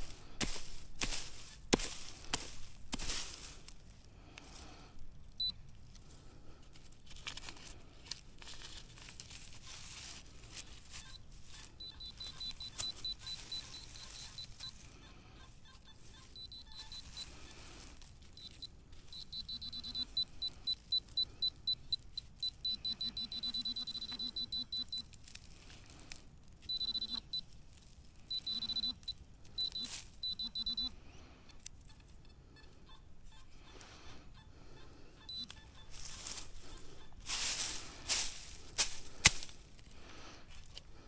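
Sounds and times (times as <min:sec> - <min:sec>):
metal detector pulsing beeps: 0:00.0 - 0:03.4, 0:05.3 - 0:05.6, 0:10.7 - 0:25.2, 0:26.6 - 0:27.5, 0:28.2 - 0:37.9.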